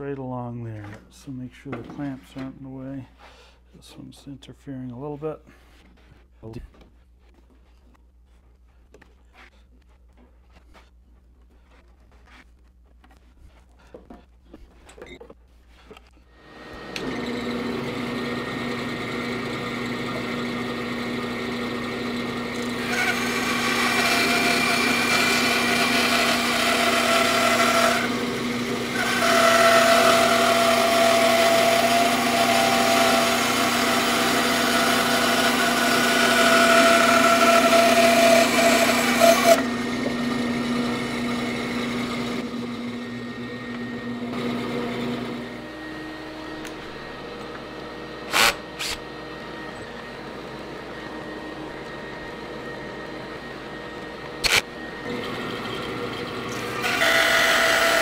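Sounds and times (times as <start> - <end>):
band saw cutting wood: 16.4 - 58.0.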